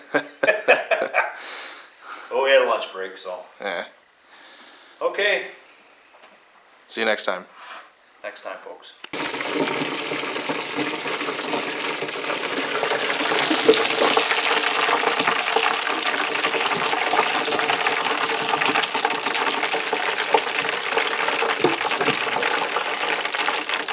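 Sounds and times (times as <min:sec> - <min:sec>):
fish deep frying in oil: 0:09.1 - 0:23.9.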